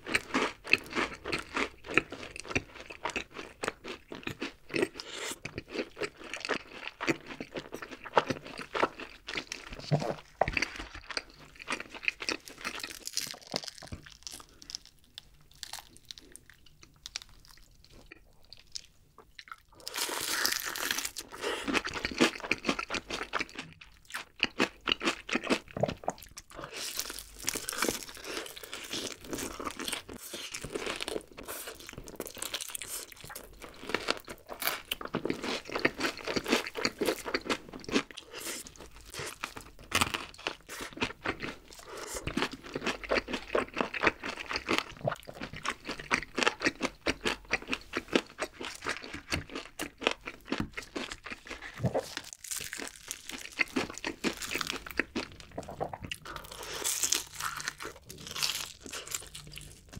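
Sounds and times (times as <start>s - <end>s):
crunching fried chicken: 0.0s - 59.9s.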